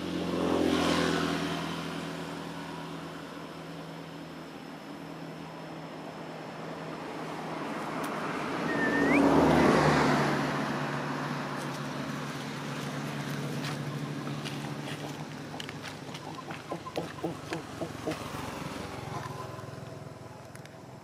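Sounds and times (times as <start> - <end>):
vehicle passing by: 0.0 - 21.0
short rising chirp: 8.6 - 9.8.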